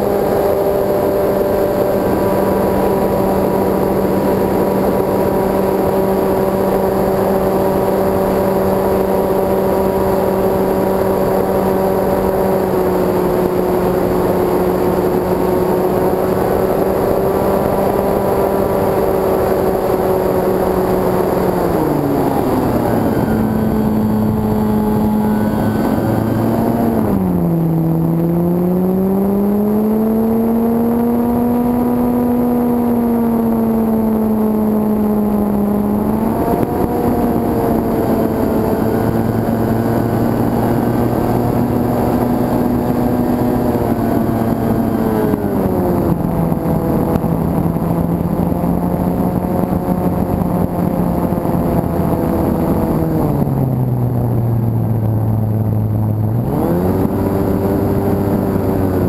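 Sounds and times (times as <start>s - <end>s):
rushing air: 0.0s - 27.6s
electric motor and propeller drone: 0.0s - 59.0s.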